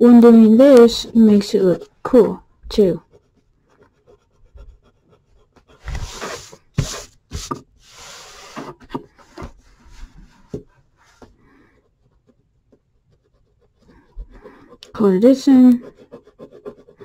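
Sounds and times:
pencil scratching on paper: 0.0s - 17.0s
paper rubbing on desk: 3.2s - 11.3s.

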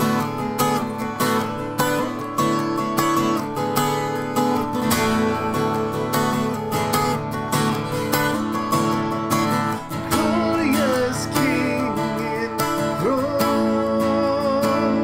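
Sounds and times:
acoustic guitar strumming: 0.0s - 15.0s
man singing: 10.0s - 15.0s.

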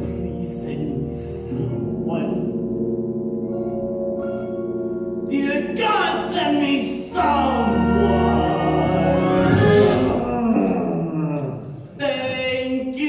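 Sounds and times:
man singing a show tune: 0.0s - 2.6s, 5.3s - 13.0s
sustained accompaniment chords: 0.0s - 11.1s.

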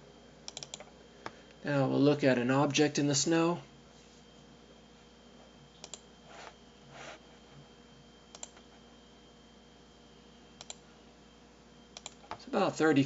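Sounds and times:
faint steady hum: 0.0s - 13.0s
computer mouse clicking: 0.5s - 0.9s, 5.8s - 6.0s, 8.3s - 8.6s, 10.6s - 10.8s, 12.0s - 12.4s.

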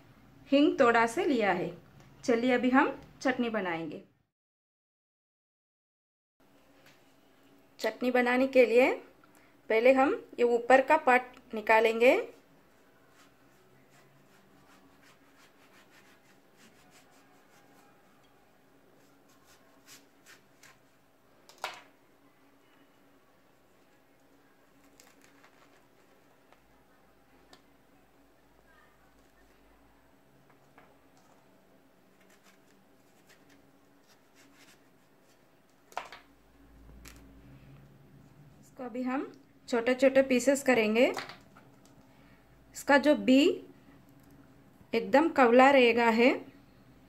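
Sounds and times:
knife scraping pumpkin: 13.9s - 18.0s.

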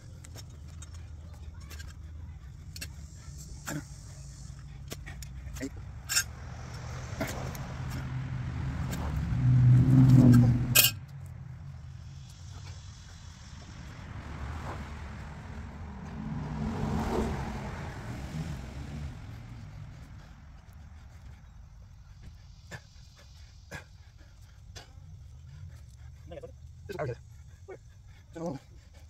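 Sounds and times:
quieter vehicle passing: 0.0s - 29.0s
vehicle engine passing: 0.0s - 29.0s.

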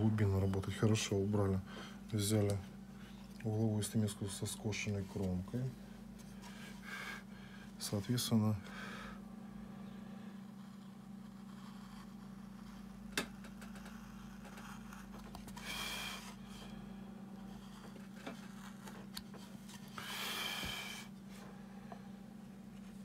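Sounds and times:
steady low hum: 0.0s - 23.0s
chisel scraping wood: 10.5s - 12.9s.

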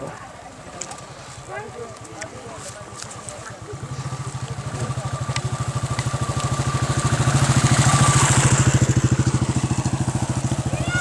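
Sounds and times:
motorcycle passing by: 2.8s - 11.0s.

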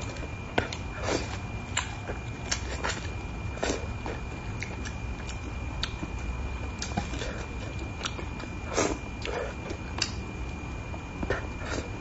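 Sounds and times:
wet mouth smacks and chewing: 4.5s - 6.1s.

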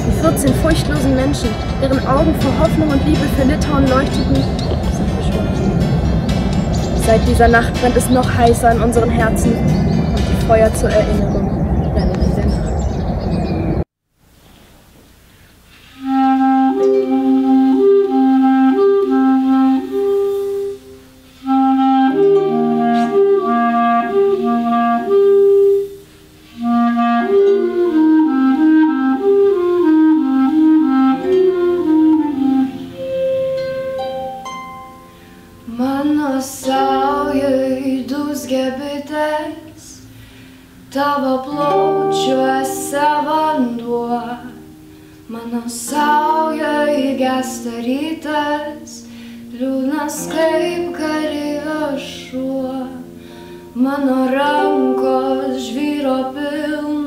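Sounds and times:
girl singing: 0.0s - 5.7s, 6.7s - 12.6s, 35.6s - 40.2s, 40.9s - 57.0s
clarinet melody: 0.0s - 12.6s, 15.8s - 57.0s
harp accompaniment: 0.0s - 12.6s, 30.0s - 39.3s.

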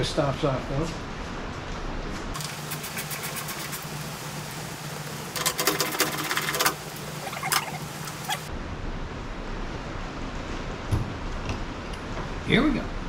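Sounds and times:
tool clicking rapidly: 5.4s - 6.8s.

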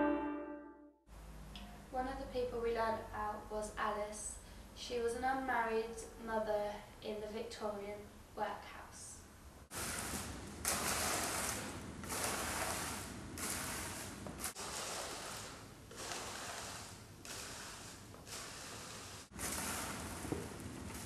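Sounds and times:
twig broom sweeping floor: 9.8s - 21.0s.

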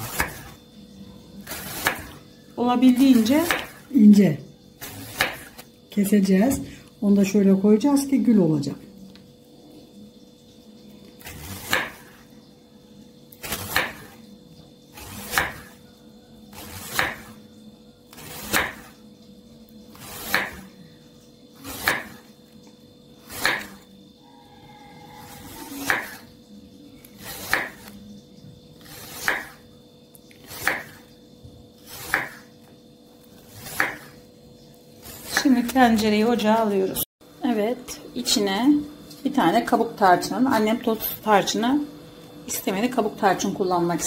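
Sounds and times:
knife slicing apple on wooden board: 0.0s - 0.5s, 1.4s - 2.2s, 3.0s - 3.9s, 4.8s - 5.7s, 11.3s - 12.2s, 13.4s - 14.2s, 15.0s - 15.8s, 16.6s - 17.4s, 18.1s - 18.9s, 19.9s - 20.7s, 21.6s - 22.2s, 23.2s - 23.8s, 25.3s - 26.2s, 27.1s - 28.0s, 28.8s - 29.6s, 30.4s - 31.0s, 31.8s - 32.6s, 33.4s - 34.2s, 35.0s - 36.1s.

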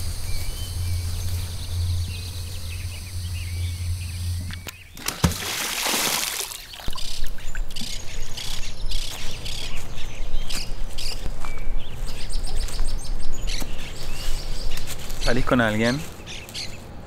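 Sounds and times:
birds chirping and twittering: 0.0s - 17.0s
low steady hum: 0.0s - 17.0s
splash into water: 5.0s - 7.3s.

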